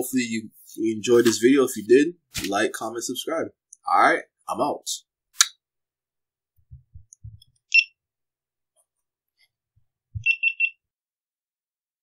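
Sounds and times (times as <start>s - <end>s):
high electronic beeps: 7.7s - 8.0s, 10.2s - 10.8s.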